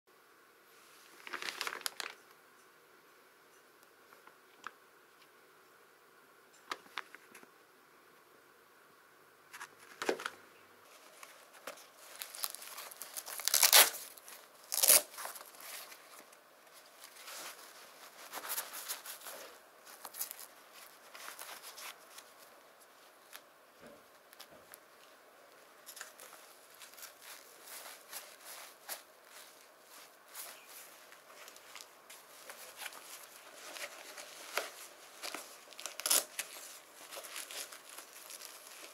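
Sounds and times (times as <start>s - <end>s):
plastic bag crinkling: 1.0s - 2.3s, 10.9s - 23.4s, 25.8s - 38.9s
plastic bag ripping: 1.2s - 2.2s, 11.7s - 15.9s, 32.5s - 38.9s.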